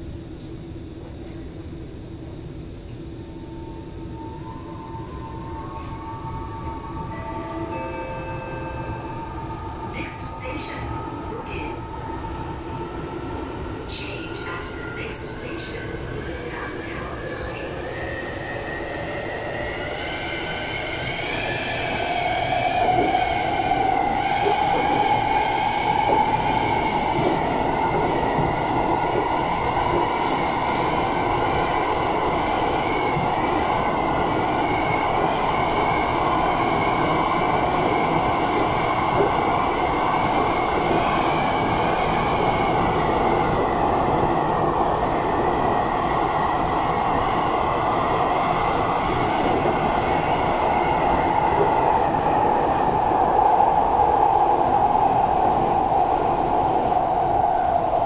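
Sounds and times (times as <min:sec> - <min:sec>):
high wavering whine: 0:01.4 - 0:43.6
train wheels rumbling on rails: 0:20.1 - 0:31.6.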